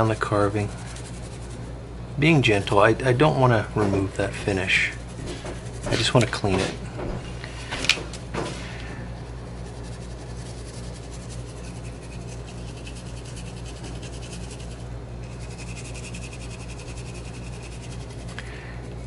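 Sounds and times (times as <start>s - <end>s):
toothbrush scrubbing wood: 0.0s - 1.7s, 4.1s - 6.8s, 9.2s - 19.0s
low hum: 0.0s - 19.0s.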